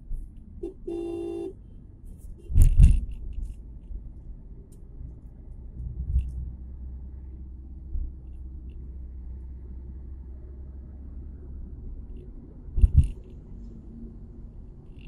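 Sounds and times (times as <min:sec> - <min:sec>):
car road rumble: 0:00.0 - 0:15.0
car horn honk: 0:00.6 - 0:01.6.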